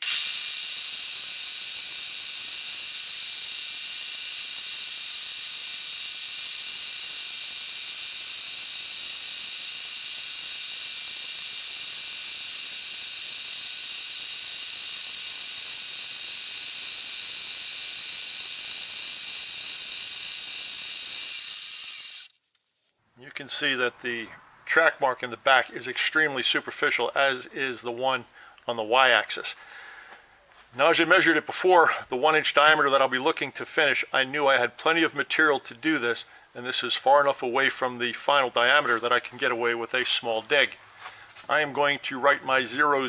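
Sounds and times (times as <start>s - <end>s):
milling machine whine: 0.0s - 22.3s.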